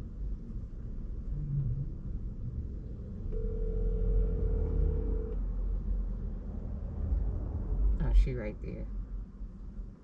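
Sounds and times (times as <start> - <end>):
low steady rumble: 0.0 - 10.0
phone ringback tone: 3.4 - 5.4.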